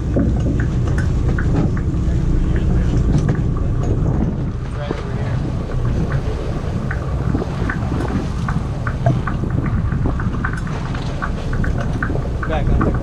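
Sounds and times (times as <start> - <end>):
wind buffeting microphone: 0.0 - 13.0
faint clicks and knocks: 0.1 - 5.0, 5.7 - 13.0.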